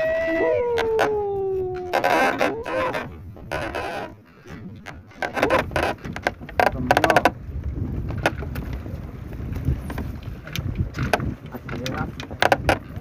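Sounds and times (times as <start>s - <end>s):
low rumble of wind: 0.0s - 13.0s
sea: 0.0s - 13.0s
net scraping and knocking on gunwale: 0.6s - 13.0s.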